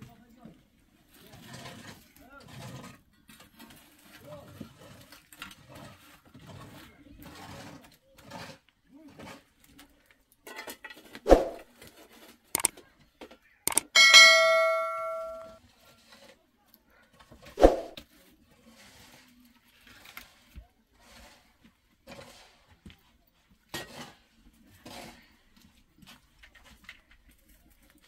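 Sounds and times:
ringing metal clang: 13.7s - 15.6s.

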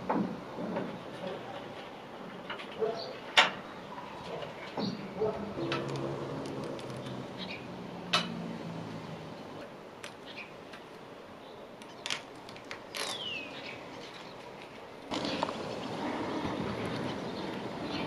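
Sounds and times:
low drone: 5.4s - 9.6s.

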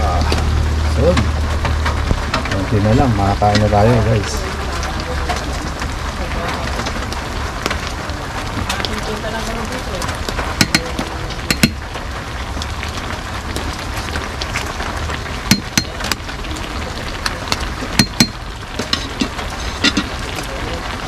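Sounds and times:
rain hiss: 0.0s - 21.0s.

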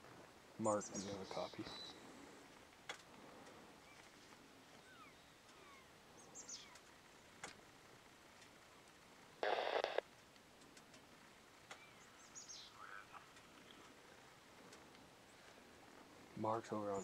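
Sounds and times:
faint bird chirps: 0.6s - 2.4s, 3.7s - 7.4s, 11.7s - 14.2s
two-way radio static burst: 9.4s - 10.0s.

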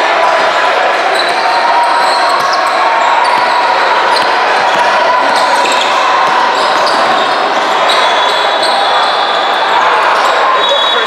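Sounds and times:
din of many voices: 0.0s - 11.0s
sneaker squeaks: 1.1s - 11.0s
basketball bouncing: 2.3s - 7.2s.

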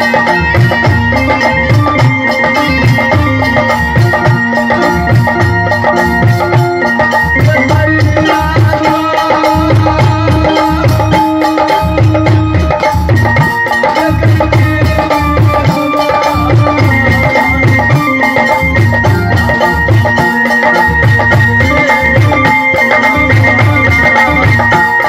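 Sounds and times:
hand drums beating: 0.0s - 25.0s
held melody notes: 0.0s - 25.0s.

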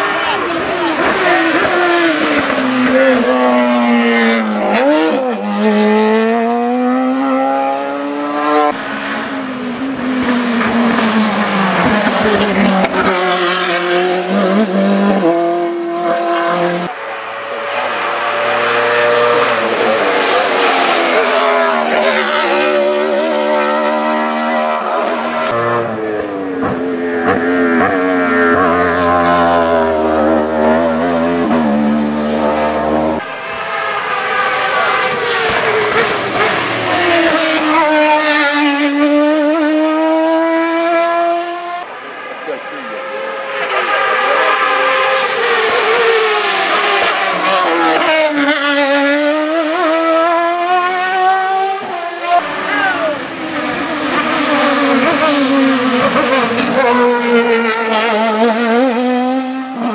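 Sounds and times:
race car engines at high revs: 0.0s - 59.9s.

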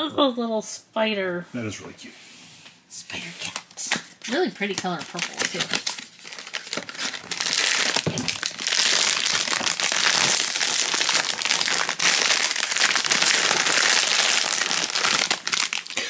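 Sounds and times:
foil bag crinkling: 4.6s - 16.0s.

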